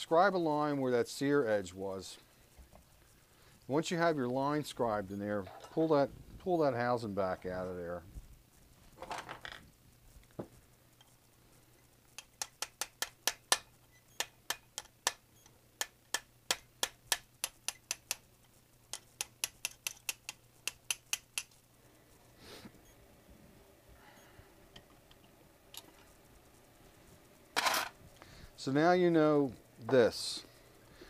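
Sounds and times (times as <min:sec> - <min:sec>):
hammer tapping metal punch: 0:12.2 - 0:15.2, 0:15.8 - 0:18.2, 0:18.9 - 0:21.5.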